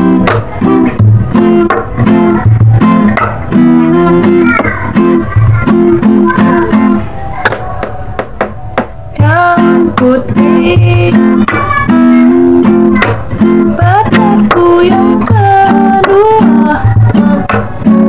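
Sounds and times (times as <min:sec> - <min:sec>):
acoustic guitar strumming and picking: 0:00.0 - 0:18.0.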